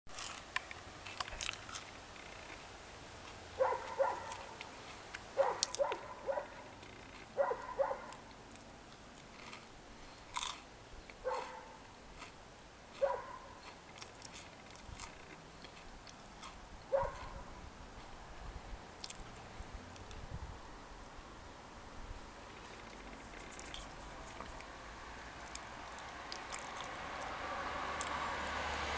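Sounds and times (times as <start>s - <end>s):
person crunching a snack: 0.1s - 3.4s, 4.2s - 6.0s, 6.7s - 7.4s, 8.1s - 10.7s, 11.4s - 16.6s, 19.0s - 20.2s, 23.2s - 24.7s, 25.4s - 27.4s
dog barking: 3.6s - 4.6s, 5.4s - 6.7s, 7.4s - 8.2s, 11.2s - 11.8s, 13.0s - 13.6s, 16.9s - 17.5s.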